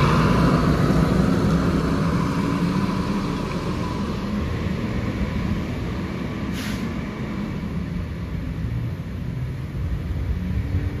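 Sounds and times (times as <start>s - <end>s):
diesel engine rumbling: 0.0s - 11.0s
brief hiss: 6.5s - 7.0s.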